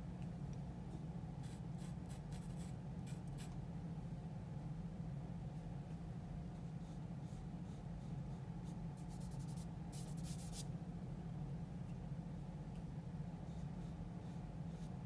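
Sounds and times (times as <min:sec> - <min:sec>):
steady low hum: 0:00.0 - 0:15.0
pencil strokes on paper: 0:06.6 - 0:10.6, 0:13.3 - 0:15.0.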